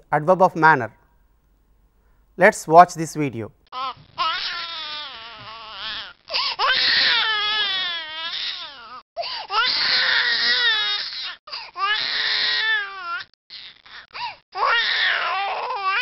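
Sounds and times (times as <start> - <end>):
infant crying: 3.8 - 16.0.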